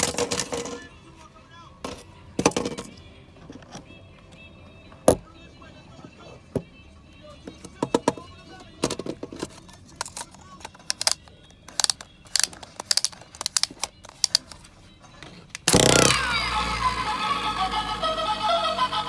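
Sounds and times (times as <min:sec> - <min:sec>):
plastic toy parts clicking: 0:08.9 - 0:14.7, 0:15.5 - 0:16.2.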